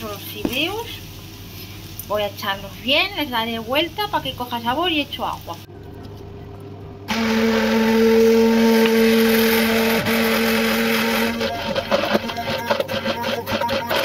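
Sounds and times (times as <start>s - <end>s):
immersion blender motor hum: 7.1s - 14.0s.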